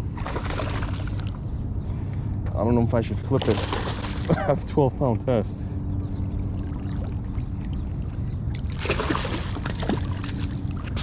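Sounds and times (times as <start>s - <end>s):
steady low hum: 0.0s - 11.0s
fish splashing in water: 0.2s - 1.4s, 3.4s - 4.4s, 6.5s - 11.0s.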